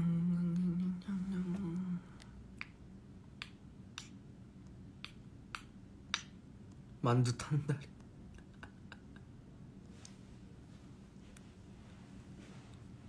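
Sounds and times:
man humming a low note: 0.0 - 2.1.

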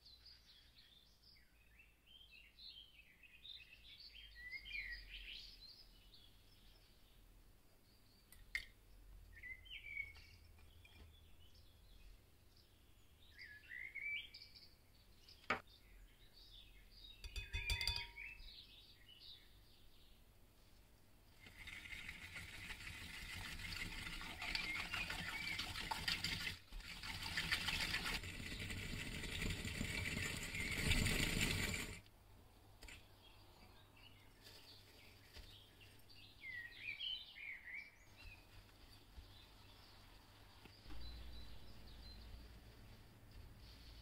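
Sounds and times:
faint bird chirps: 0.0 - 20.3, 32.6 - 43.0
whisk clinking in glass bowl: 17.2 - 18.2.

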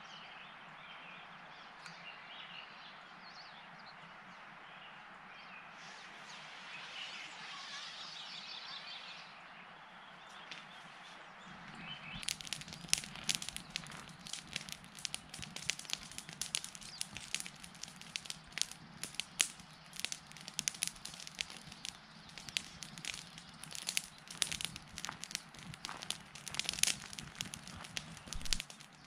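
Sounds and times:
campfire crackling and popping: 11.4 - 29.0.

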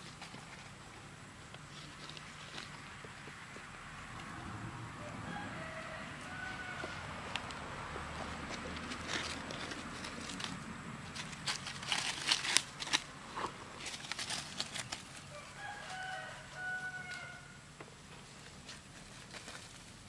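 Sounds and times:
rooster crowing: 4.8 - 7.4, 15.2 - 17.7
footsteps in dry leaves: 5.3 - 17.4.

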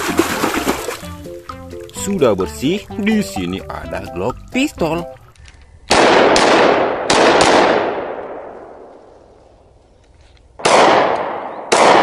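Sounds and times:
pistol shots with echo: 5.9 - 8.8, 10.6 - 12.0.

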